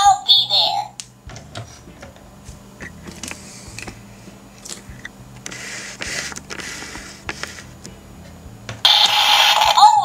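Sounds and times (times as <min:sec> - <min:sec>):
rubbing scrape: 0:05.5 - 0:07.8.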